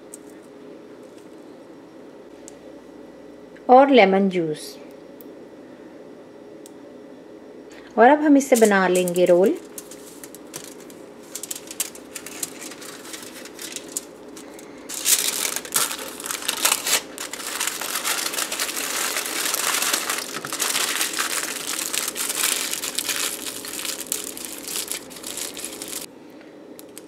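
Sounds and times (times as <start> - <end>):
faint steady hum: 0.0 - 27.0
aluminium foil crinkling: 8.5 - 26.1.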